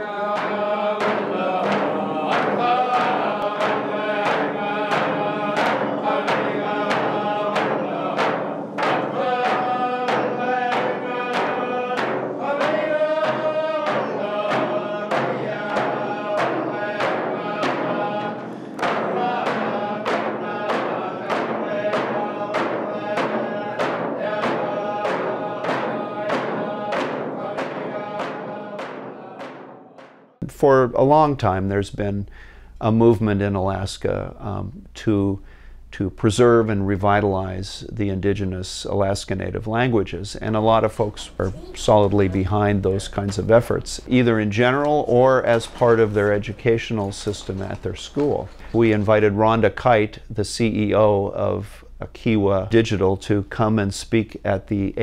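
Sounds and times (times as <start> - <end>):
voices singing together: 0.0 - 30.5, 40.0 - 50.0
steady drumbeat: 0.0 - 31.3, 39.4 - 50.9.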